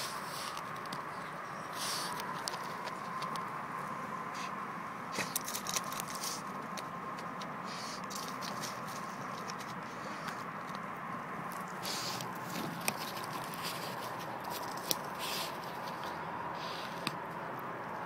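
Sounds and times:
dog scratching in dry soil: 0.0s - 3.3s, 4.3s - 17.4s
dirt and leaves pattering: 5.1s - 18.0s.

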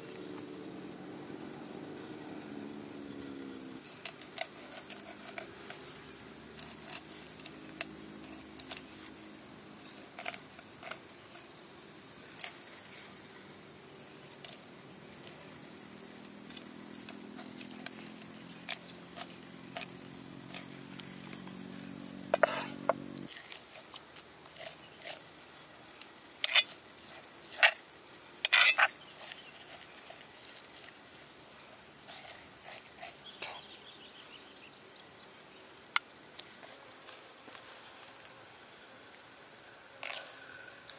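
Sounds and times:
cleaver scraping fish: 3.8s - 9.2s, 9.8s - 11.5s, 22.3s - 25.4s, 26.4s - 33.4s.

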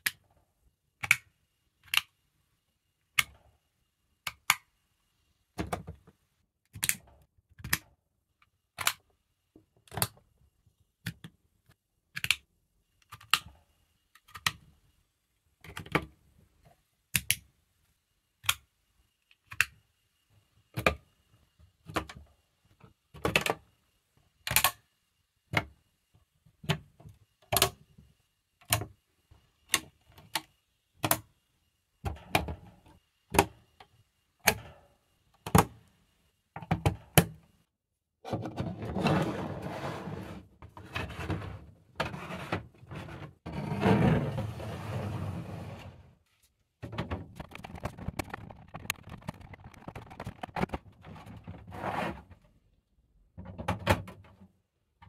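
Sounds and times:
plastic parts clicking together: 1.0s - 2.2s, 6.7s - 9.0s, 12.1s - 13.6s, 14.2s - 14.6s, 17.1s - 17.5s, 19.3s - 19.8s, 24.5s - 24.8s.

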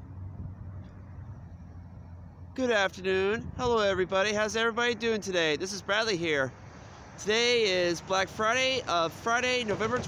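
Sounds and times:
steady low rumble: 0.0s - 4.7s.

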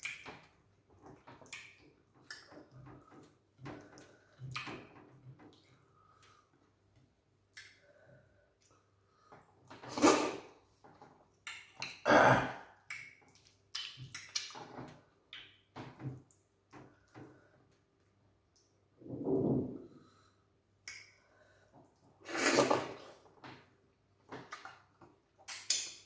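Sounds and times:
wet mouth noises and chewing: 12.8s - 15.6s, 24.4s - 26.0s.

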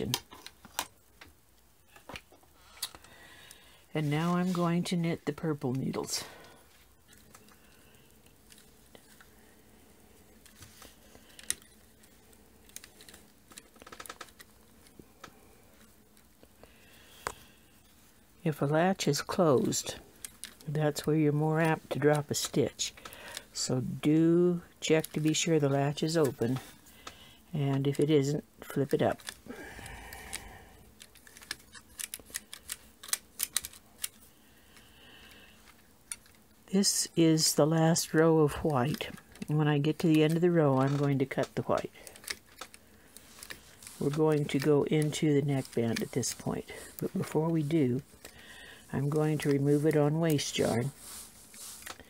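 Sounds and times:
knitting machine needles clicking: 10.4s - 16.4s, 24.3s - 34.2s, 37.3s - 52.0s.

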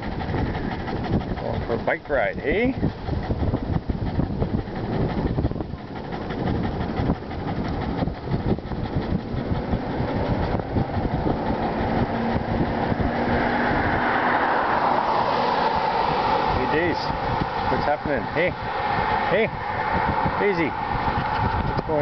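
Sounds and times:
wind buffeting microphone: 0.0s - 22.0s
rushing noise: 4.4s - 22.0s.

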